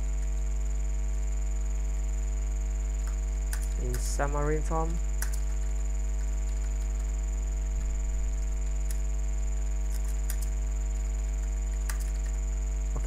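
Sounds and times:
electrical mains hum: 0.0 - 13.0
faint high whine: 0.0 - 13.0
keyboard keystroke clicks: 3.0 - 4.2, 5.2 - 5.5, 9.9 - 10.5, 11.7 - 12.4.

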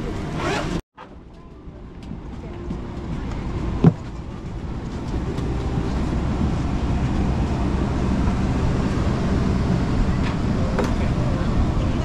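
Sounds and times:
low rumble of moving vehicle: 0.0 - 12.0.

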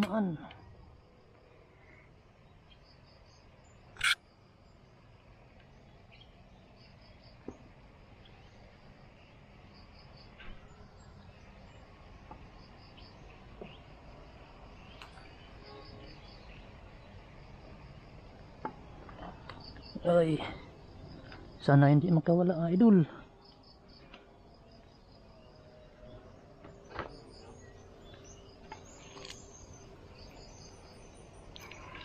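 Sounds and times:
insect chirping: 0.0 - 32.0
sharp click: 4.0 - 4.2.

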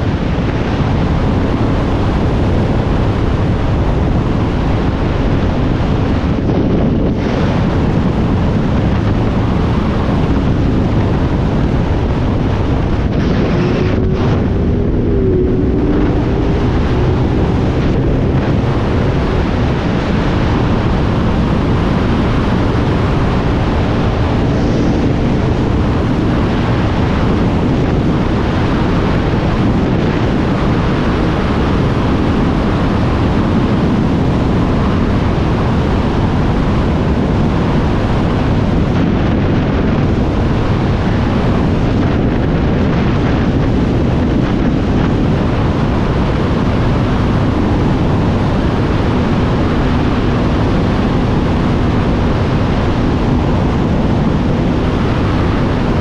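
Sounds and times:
motorcycle engine running: 0.0 - 33.5
wind rushing over microphone: 0.0 - 56.0.

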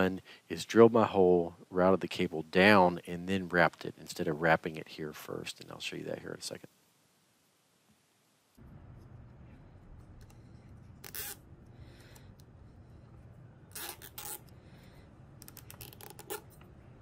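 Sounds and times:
low steady hum: 0.0 - 17.0
wire rustling scratchily: 10.8 - 11.5, 13.7 - 14.5, 15.4 - 16.6.

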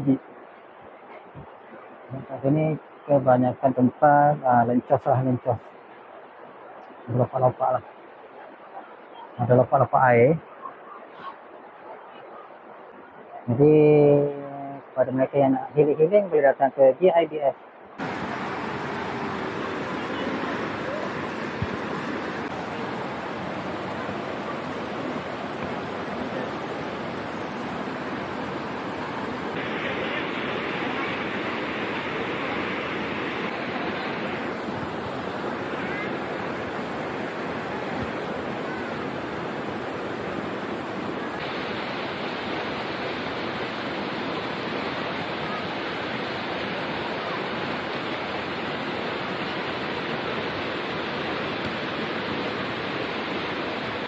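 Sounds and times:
river rushing over rocks: 17.8 - 54.0.

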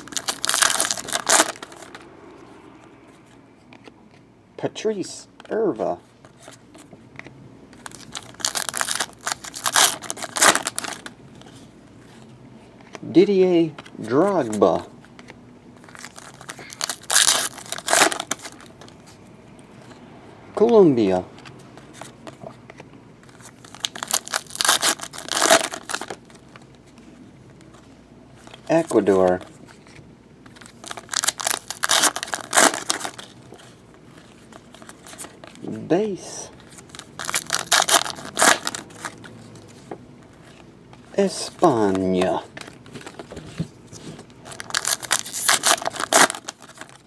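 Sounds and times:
foil wrapper crinkling: 0.0 - 1.9, 7.8 - 11.1, 15.8 - 19.0, 23.2 - 26.7, 28.4 - 35.6, 36.6 - 39.3, 44.0 - 47.0.

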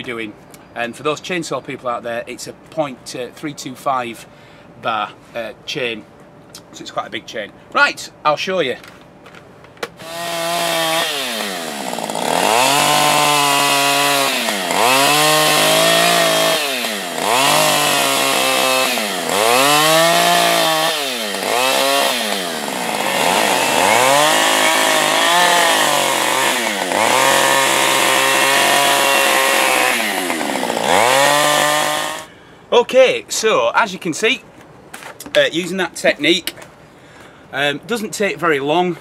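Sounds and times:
chainsaw planing wood: 10.0 - 32.3.

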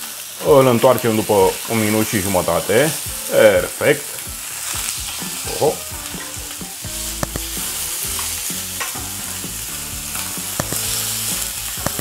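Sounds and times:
fish sizzling in a frying pan: 0.0 - 12.0
metal tongs clicking on pan: 8.2 - 9.0.

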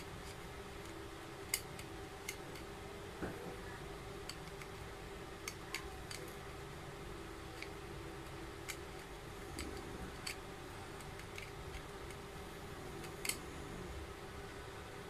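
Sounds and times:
sharp plastic clicks: 0.0 - 2.7, 5.4 - 6.4, 12.9 - 13.5.

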